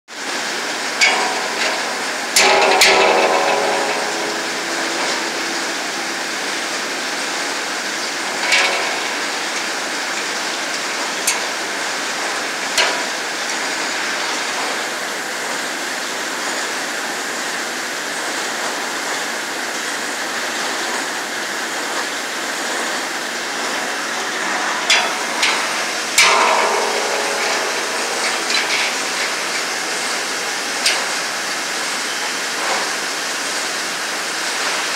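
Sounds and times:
steel blade ringing: 1.0s - 9.7s, 23.6s - 33.0s
steady rushing noise: 1.0s - 10.2s, 22.3s - 33.4s.

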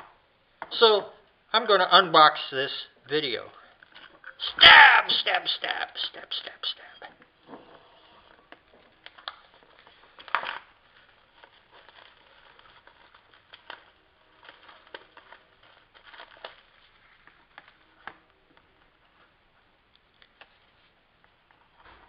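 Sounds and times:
plastic wrap crinkling and tearing: 8.9s - 18.0s.

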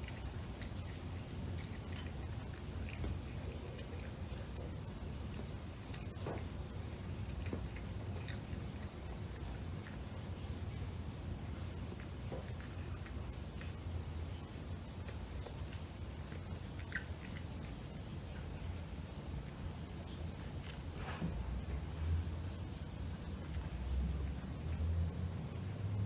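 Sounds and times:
cat crunching dry kibble: 0.0s - 10.3s.

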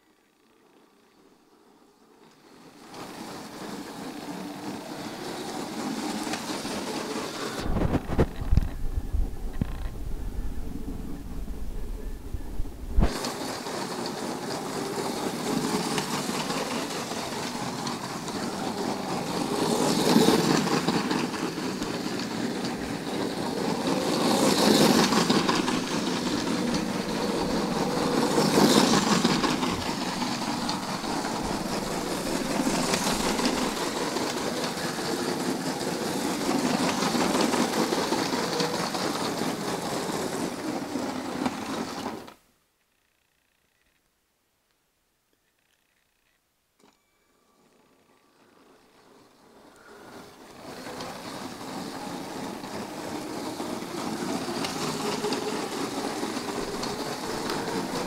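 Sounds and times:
wheels rattling over plastic track: 2.1s - 10.5s, 13.0s - 42.4s, 47.6s - 58.0s
toy train motor running: 13.2s - 42.4s, 46.8s - 58.0s.

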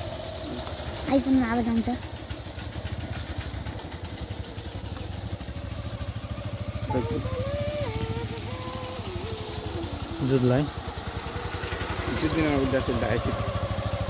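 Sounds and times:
motorcycle engines puttering: 0.0s - 14.0s
higher wavering tone: 6.8s - 14.0s.

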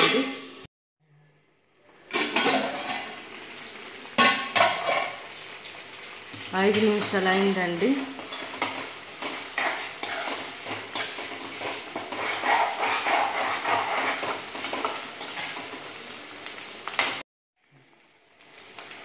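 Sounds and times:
food sizzling in oil: 0.0s - 0.7s, 1.4s - 19.0s
metal spoon scraping pan: 8.2s - 15.8s.

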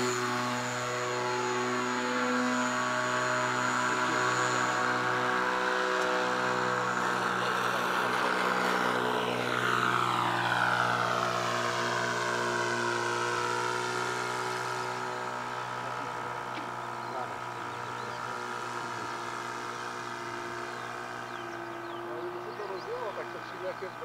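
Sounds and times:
model airplane engine flying past: 0.0s - 24.0s.

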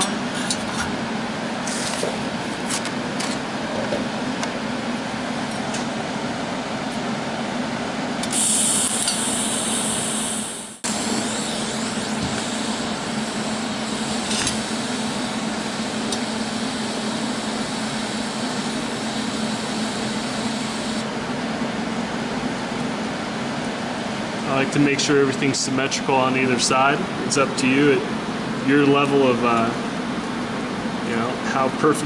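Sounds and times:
steady hum: 0.0s - 32.0s
welding arc hissing: 8.2s - 21.0s.

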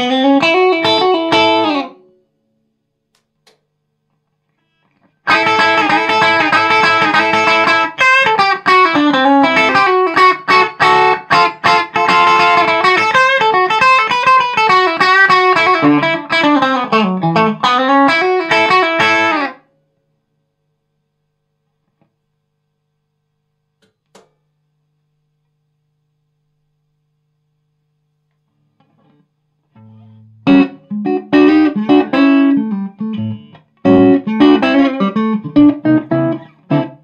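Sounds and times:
electric guitar playing rockabilly: 0.0s - 2.1s, 5.2s - 19.6s, 29.8s - 37.0s.

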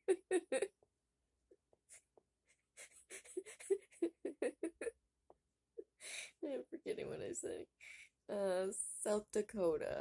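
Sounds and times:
woman giggling: 0.0s - 0.8s, 2.8s - 5.0s.

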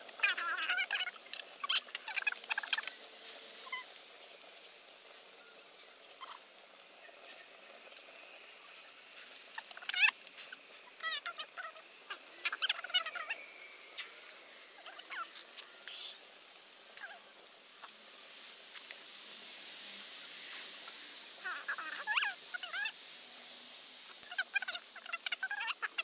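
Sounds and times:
fire crackling and popping: 0.0s - 26.0s
fire hissing: 0.0s - 26.0s
short squealing whistles: 3.6s - 3.9s.

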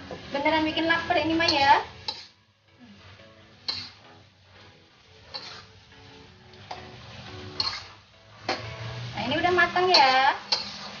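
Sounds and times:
soft background music: 0.0s - 11.0s
metal spatula scraping a wok: 1.4s - 2.4s, 3.6s - 4.0s, 5.2s - 9.0s, 9.7s - 11.0s.

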